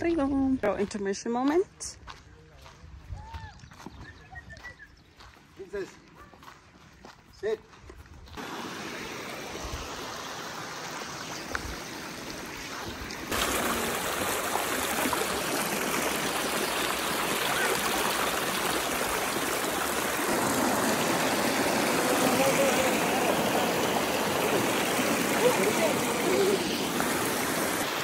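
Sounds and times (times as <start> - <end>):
creek running over rocks: 8.3 - 28.0.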